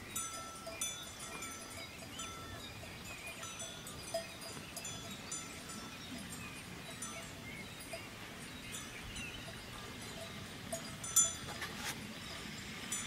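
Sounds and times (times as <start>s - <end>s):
cattle bells clinking: 0.0s - 13.0s.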